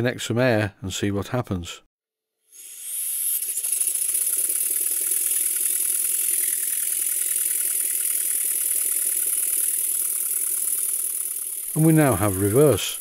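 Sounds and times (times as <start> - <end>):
model steam engine exhaust beat: 3.3 - 13.0.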